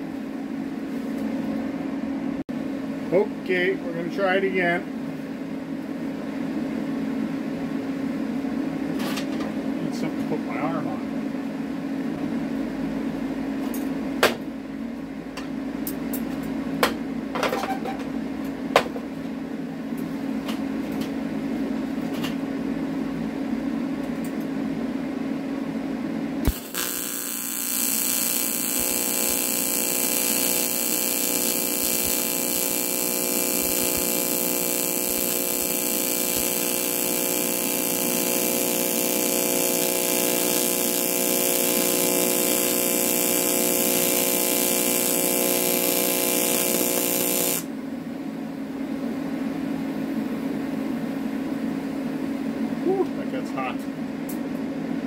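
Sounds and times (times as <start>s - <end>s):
steady machine hum: 0.0s - 55.0s
welding arc buzzing hiss: 26.4s - 47.7s.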